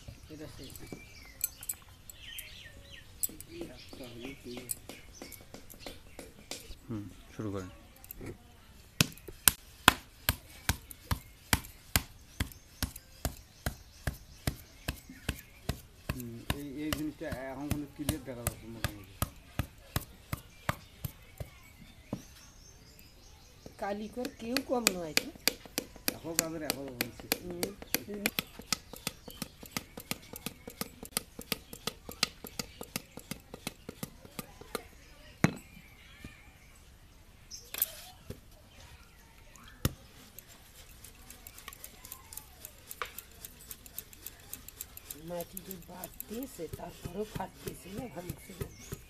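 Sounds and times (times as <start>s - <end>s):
wooden paddle slapping clay: 9.0s - 22.4s, 23.6s - 35.0s, 39.6s - 49.0s.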